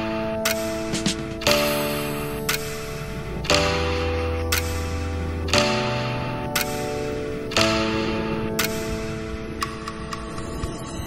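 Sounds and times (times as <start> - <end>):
soft instrumental music: 0.0 - 11.0
light ticks: 4.5 - 10.4.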